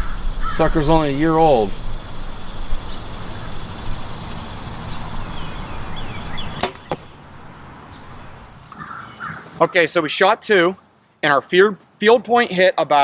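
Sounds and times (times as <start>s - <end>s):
steady rushing noise: 0.0s - 8.7s
arrow striking target: 6.6s - 7.1s
bowstring snap: 6.6s - 7.1s.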